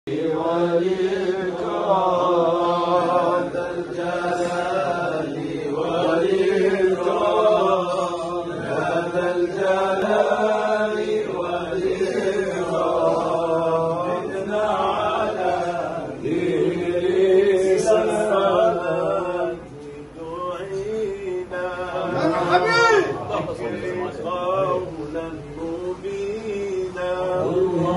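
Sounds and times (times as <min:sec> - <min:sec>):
men chanting unaccompanied: 0:00.1 - 0:27.9.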